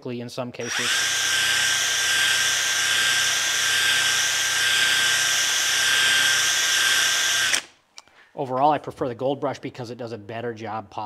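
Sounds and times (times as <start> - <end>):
cordless drill spinning brush: 0.6 - 7.7.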